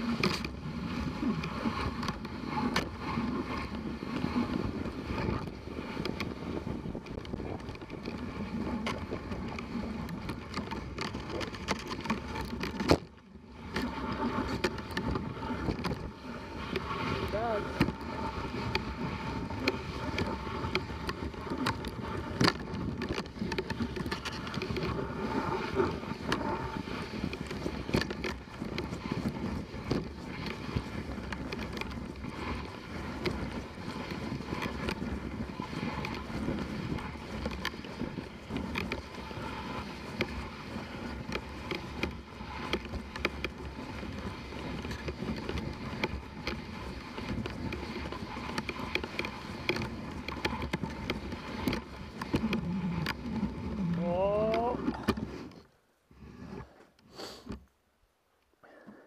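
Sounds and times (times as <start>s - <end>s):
sled clicks and knocks: 0.0s - 57.8s
sled runners hissing on snow: 24.8s - 53.5s, 56.1s - 57.6s.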